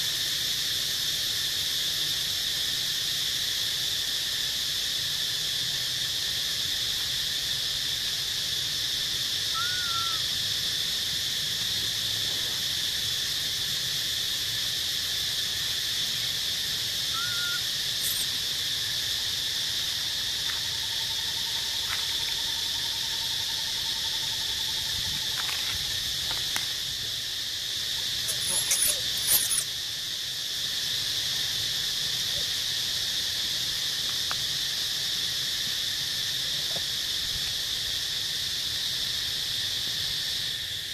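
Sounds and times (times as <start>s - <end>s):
high-pitched insect chorus: 0.0s - 40.9s
short high squeals: 17.2s - 18.4s, 28.2s - 29.7s.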